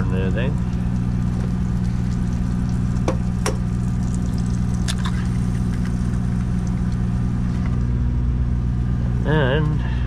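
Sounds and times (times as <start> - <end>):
eggs cracking: 0.6 - 7.8.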